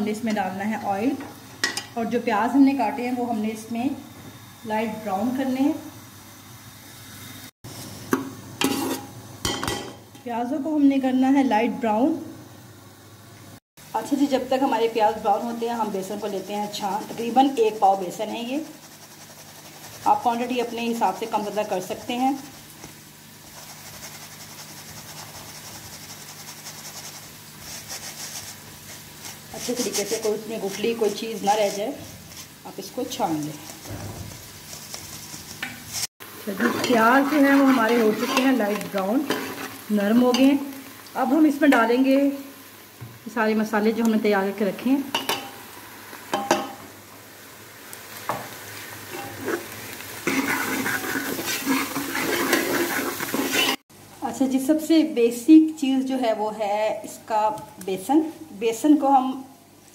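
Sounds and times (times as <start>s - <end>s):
onions sizzling in oil: 0.0s - 59.9s
metal ladle scraping pot: 8.6s - 9.1s, 36.5s - 40.5s, 49.1s - 53.8s
flour sifted through mesh sieve: 15.7s - 22.8s, 23.4s - 39.8s, 50.3s - 53.8s.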